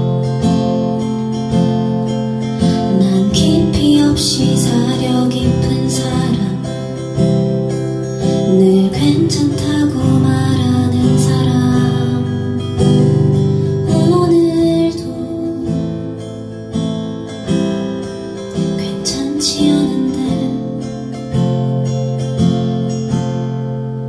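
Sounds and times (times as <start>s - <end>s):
acoustic guitar strummed: 0.0s - 24.0s
woman singing: 2.3s - 16.6s, 18.4s - 21.6s.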